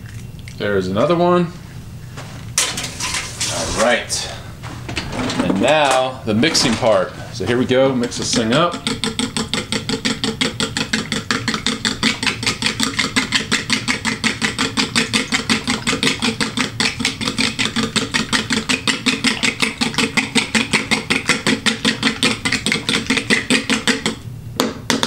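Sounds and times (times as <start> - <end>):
fork beating eggs in plastic bowl: 8.0 - 24.2.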